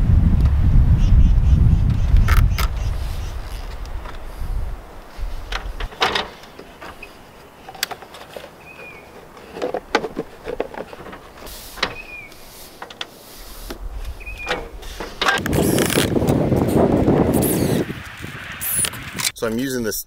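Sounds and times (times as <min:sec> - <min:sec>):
plastic scraping on plastic: 0:05.6 - 0:19.4.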